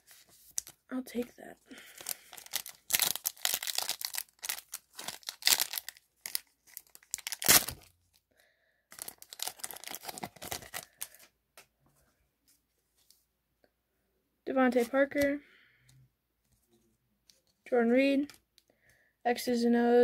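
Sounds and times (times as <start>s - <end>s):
foil wrapper tearing and crinkling: 1.8s - 7.9s, 8.9s - 11.2s.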